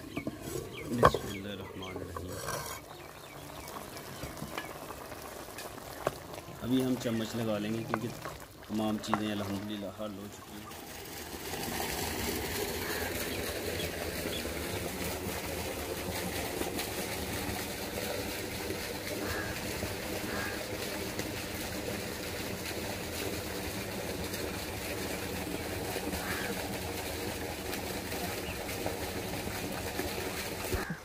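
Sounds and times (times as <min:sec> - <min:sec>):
engine droning hum: 0:09.0 - 0:31.0.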